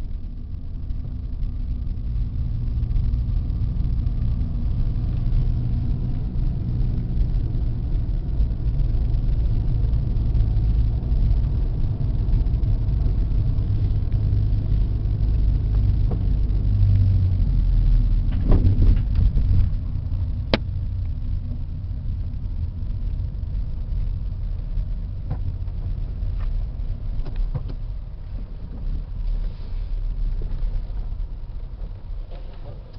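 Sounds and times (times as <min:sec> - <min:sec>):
car engine and road rumble: 0:00.0 - 0:32.9.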